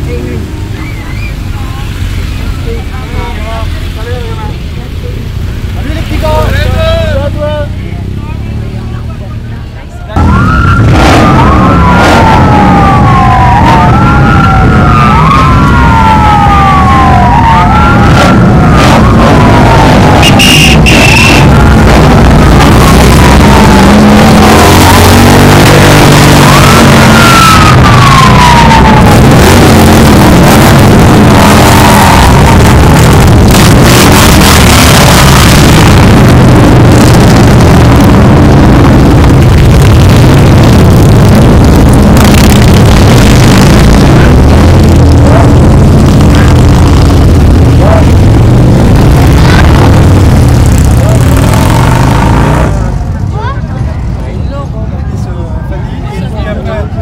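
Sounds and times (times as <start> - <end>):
rising and falling siren wail: 10.2 - 50.9.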